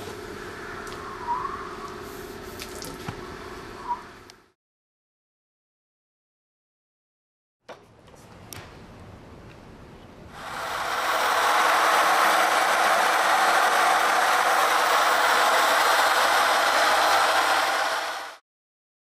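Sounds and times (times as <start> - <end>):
polisher grinding concrete: 10.4 - 18.4.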